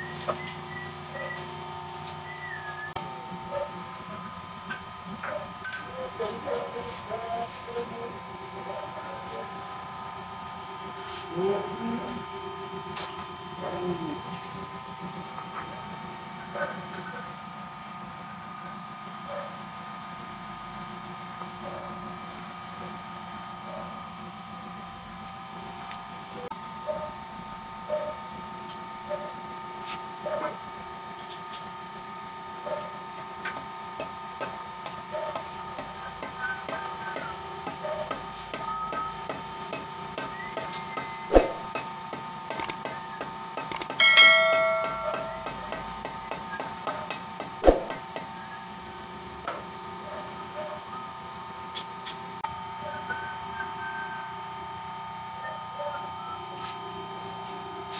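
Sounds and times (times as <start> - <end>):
steady multi-tone hum: 0.0 - 57.9
hammer tapping on metal hub: 33.5 - 48.3.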